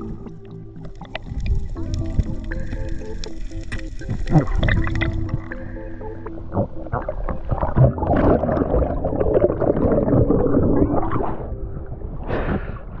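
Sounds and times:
underwater bubbling and gurgling: 0.0 - 13.0
water splash: 7.2 - 11.6.

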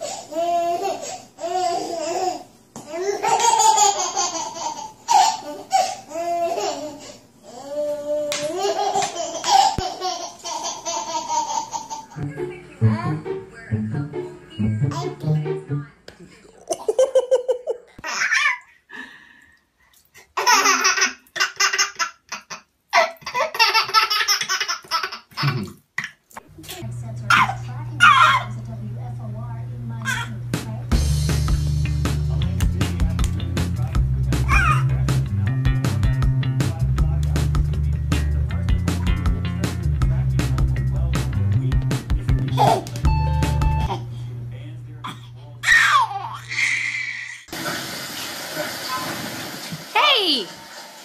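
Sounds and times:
baby laughing: 0.3 - 12.2, 16.7 - 18.8, 20.4 - 26.1, 27.3 - 28.5, 30.0 - 30.4, 34.5 - 34.9, 42.5 - 43.0, 45.1 - 47.5.

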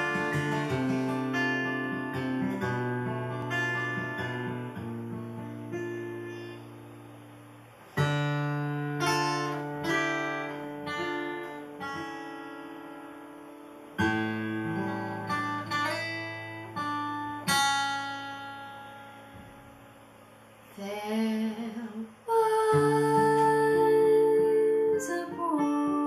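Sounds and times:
acoustic guitar chords: 0.0 - 26.0
woman singing: 20.7 - 26.0.

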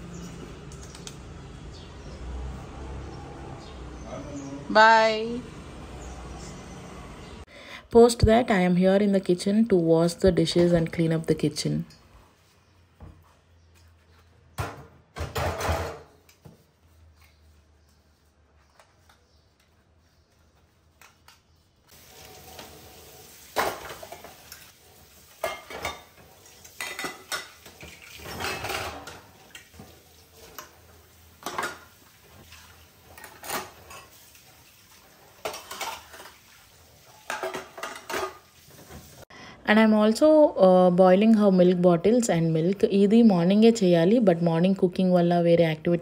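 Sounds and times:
dishes clinking in metal rack: 26.8 - 29.3, 37.2 - 38.4.

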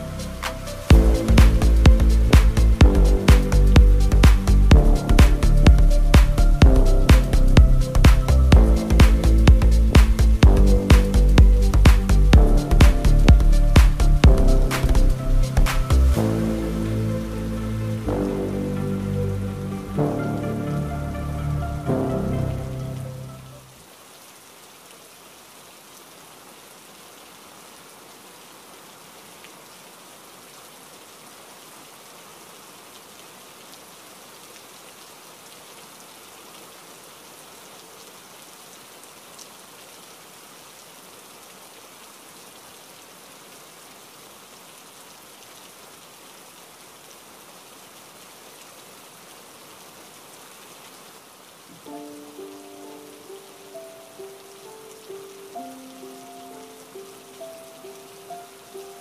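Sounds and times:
soft musical notes: 0.0 - 23.7, 51.8 - 59.0
steady rain: 0.0 - 59.0.

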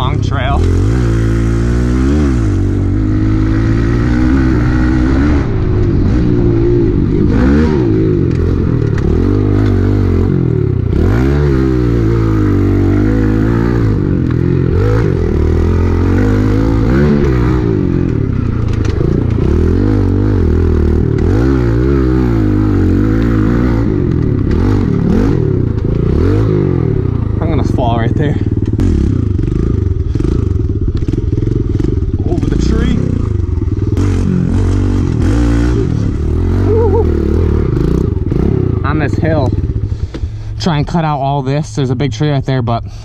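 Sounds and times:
motorbike engine revving: 0.0 - 41.4
bike rattling and knocking: 5.2 - 35.3.

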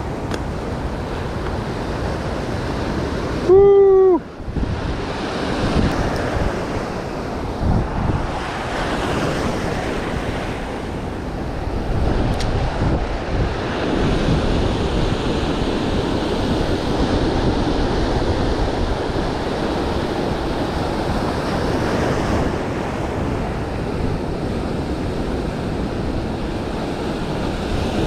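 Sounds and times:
ocean surf breaking: 0.0 - 28.0.

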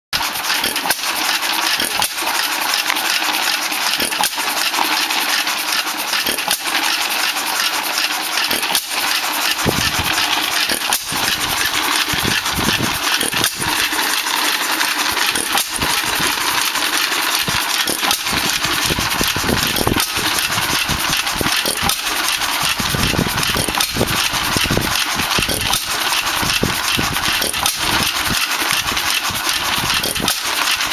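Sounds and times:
mechanical clatter: 0.2 - 30.9
engine firing thumps: 9.5 - 14.0.

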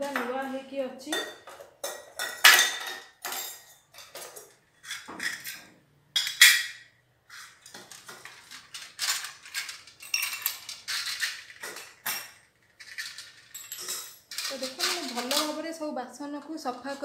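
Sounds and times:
brass dishes clinking: 1.1 - 7.6, 8.8 - 15.4.

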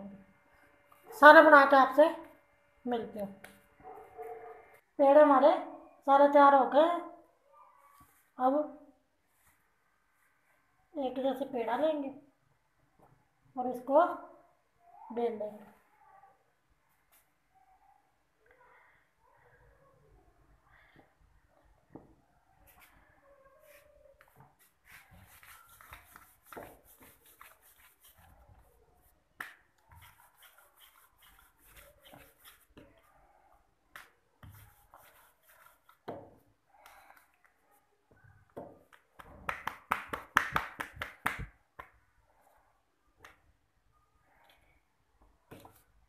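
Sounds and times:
hands dusting dough in flour: 23.6 - 33.0.

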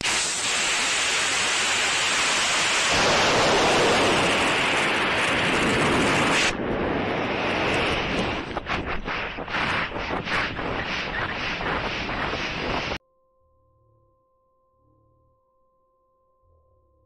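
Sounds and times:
gusting wind noise: 0.0 - 13.0
rocket motor roaring: 0.0 - 13.0.

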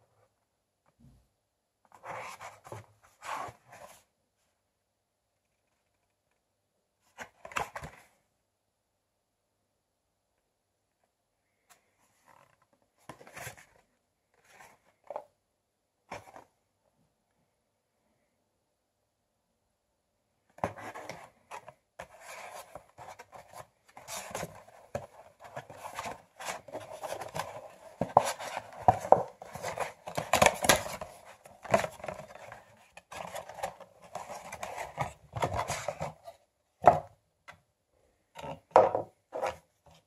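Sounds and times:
cardboard and plastic rustling: 20.6 - 37.1.

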